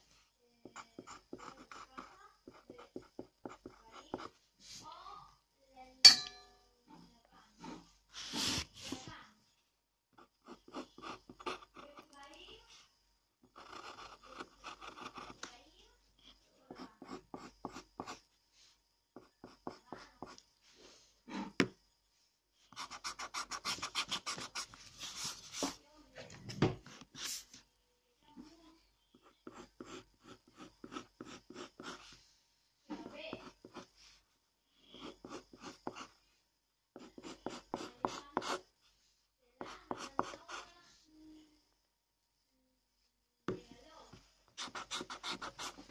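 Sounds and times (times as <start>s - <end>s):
pencil scratching on paper: 0.6s - 4.9s, 7.6s - 9.1s, 10.2s - 15.5s, 16.2s - 18.3s, 19.2s - 20.4s, 22.7s - 25.8s, 29.1s - 32.2s, 32.9s - 34.2s, 34.8s - 36.2s, 37.0s - 38.7s, 39.6s - 40.7s, 44.6s - 45.9s.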